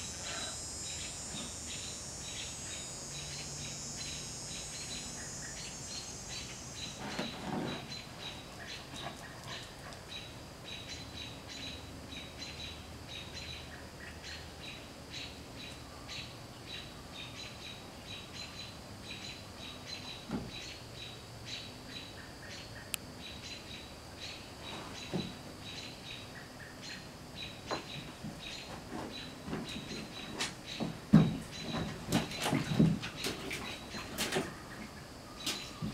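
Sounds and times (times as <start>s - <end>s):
chorus of high chirps: 0.0s - 7.0s.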